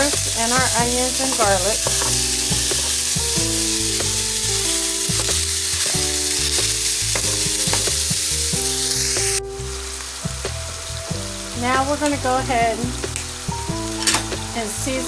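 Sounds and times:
meat sizzling in oil: 0.0 - 15.0
spatula stirring meat in pan: 0.2 - 8.4.

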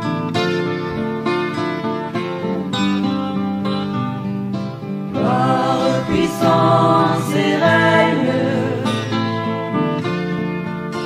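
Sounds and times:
acoustic guitar strumming chords: 0.0 - 11.0.

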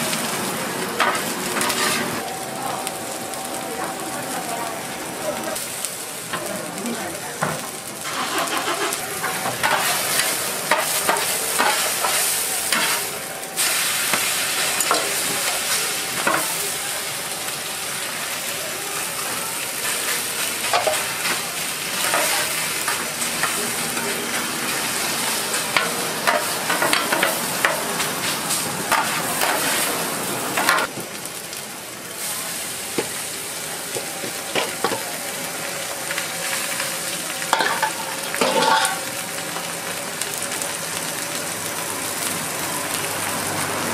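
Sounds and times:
batter sizzling on a griddle: 0.0 - 43.9
metal spatulas clacking and scraping: 37.6 - 39.0.

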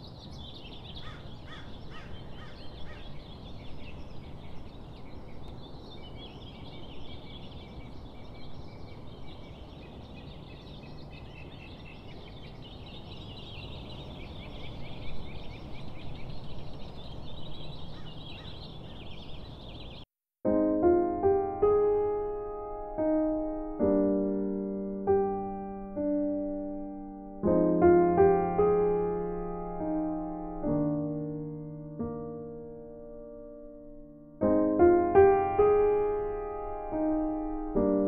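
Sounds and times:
birds chirping and trilling: 0.0 - 20.1.

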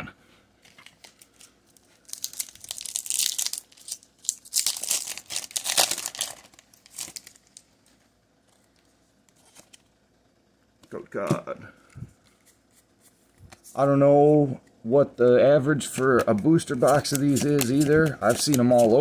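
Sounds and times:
foil wrapper crinkling and tearing: 0.8 - 7.7, 16.8 - 19.0.

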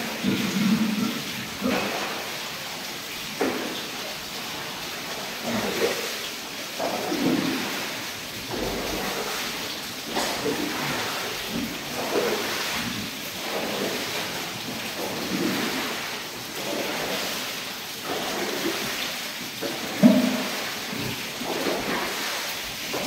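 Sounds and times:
pigs grunting: 0.0 - 2.3, 5.3 - 6.2, 8.5 - 16.0
falling water hissing: 0.0 - 23.0.

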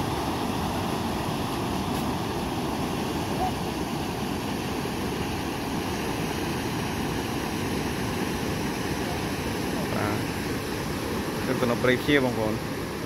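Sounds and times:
water pouring over dam spillway: 0.0 - 13.0.

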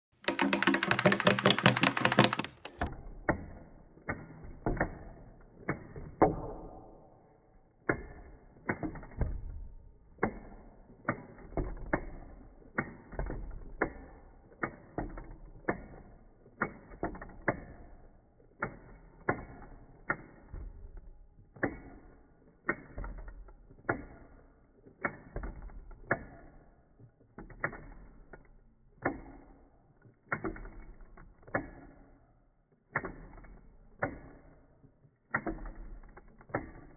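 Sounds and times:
clockwork toy clicking: 0.1 - 2.8.

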